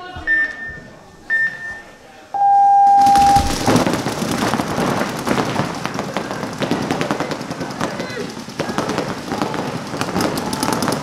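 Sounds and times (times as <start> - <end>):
loud electronic start tone: 2.4 - 3.8
paintball markers firing: 3.4 - 11.0.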